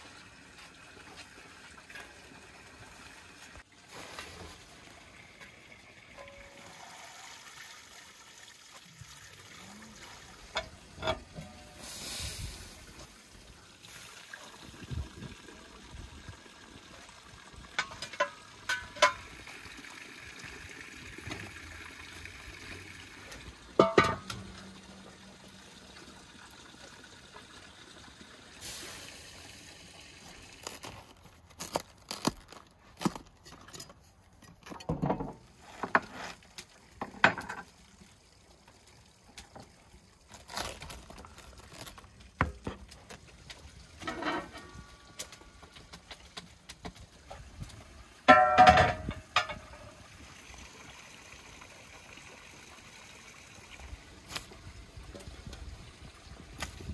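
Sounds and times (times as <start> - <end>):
water pouring into a pot: 0.0 - 32.6, 35.4 - 56.9
metal bowl clanking: 10.5 - 11.8, 17.8 - 19.3, 23.8 - 25.0, 48.3 - 50.0
ladle stirring water in pot: 17.7 - 19.4.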